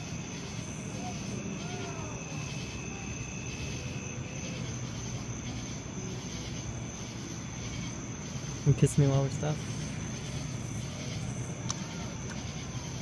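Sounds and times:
low rumble and hiss: 0.0s - 13.0s
thin high steady whine: 0.0s - 13.0s.

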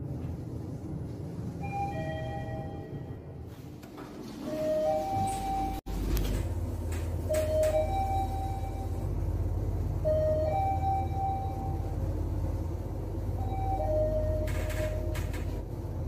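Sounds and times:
steady low hum: 0.0s - 16.0s
two-tone elevator chime: 1.6s - 3.3s, 7.3s - 9.1s.

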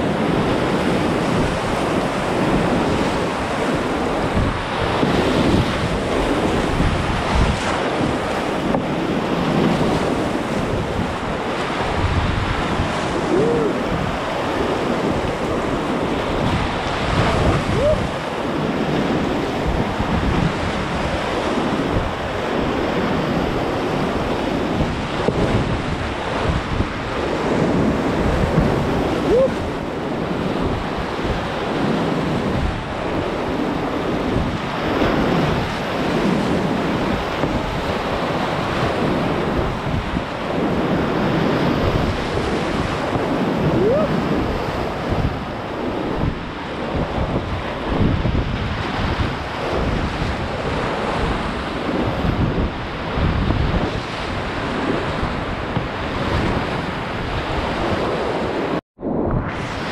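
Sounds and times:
whitewater rapids rushing: 0.0s - 46.2s
wind noise on microphone: 0.0s - 59.9s.

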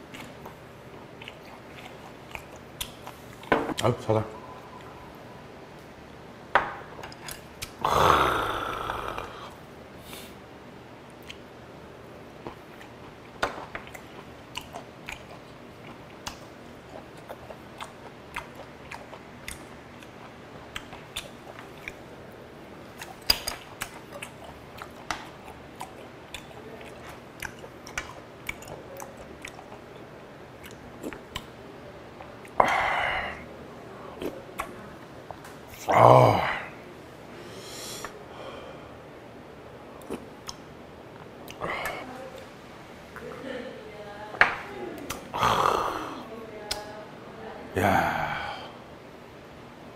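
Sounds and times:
wet chewing mouth clicks: 1.2s - 3.5s, 12.4s - 22.0s, 23.0s - 31.6s, 40.0s - 42.0s.

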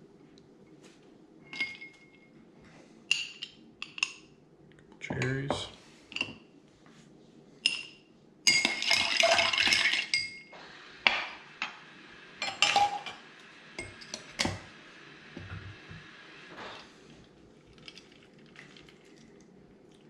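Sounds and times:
glassware and bar tools clinking: 1.5s - 2.3s, 3.1s - 4.2s, 7.6s - 10.5s, 12.4s - 13.2s.

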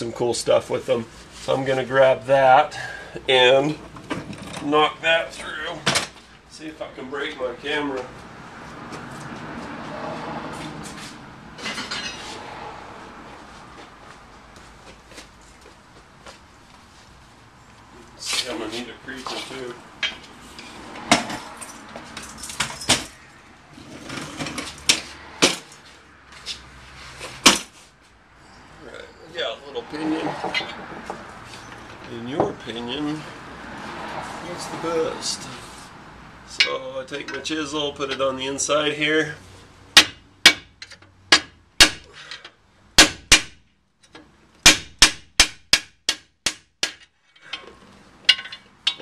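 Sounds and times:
metal tools clanking: 11.6s - 12.3s, 19.3s - 23.2s, 30.4s - 30.8s, 47.3s - 49.0s.

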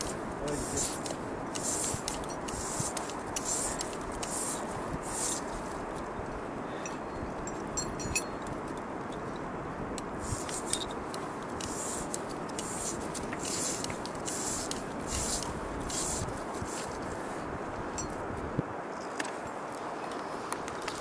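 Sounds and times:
steady hiss: 0.0s - 21.0s
climbing gear clinks: 6.7s - 9.3s.

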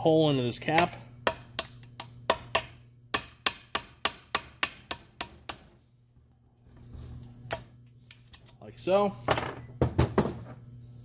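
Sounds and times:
hammer striking metal punch: 0.7s - 5.7s.

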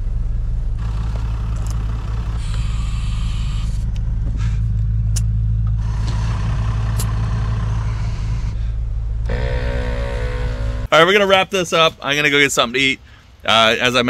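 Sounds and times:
low machine hum: 0.0s - 11.0s
compressed air hissing: 0.8s - 4.6s.

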